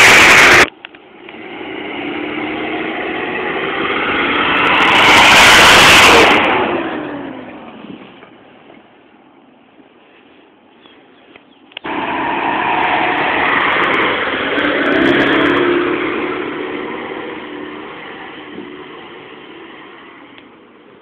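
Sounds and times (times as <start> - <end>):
pickup truck driving past: 11.9 - 20.7.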